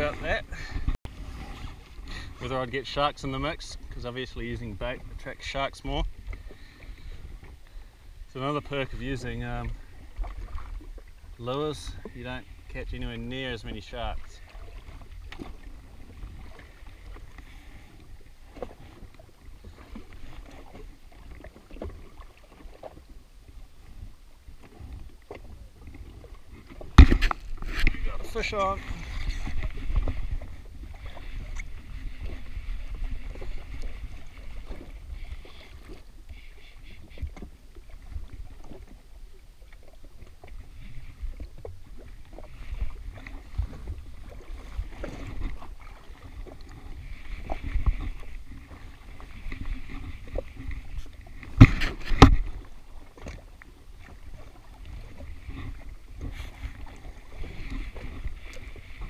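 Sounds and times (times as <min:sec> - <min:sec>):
water slapping against hull: 0:00.0 - 0:59.0
wind on microphone: 0:23.8 - 0:36.2, 0:40.4 - 0:52.7.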